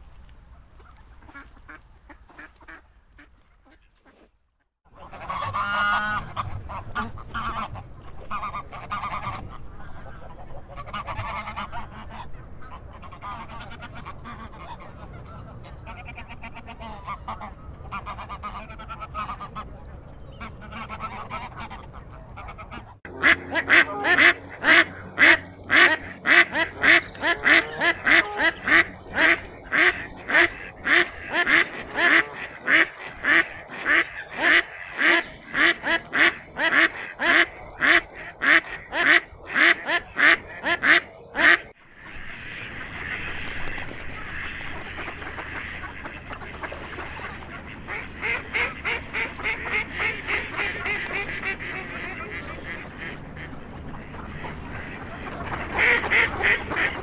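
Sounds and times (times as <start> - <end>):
waterfowl chattering: 4.9 - 57.0
duck quacking loudly: 22.4 - 43.4, 54.3 - 57.0.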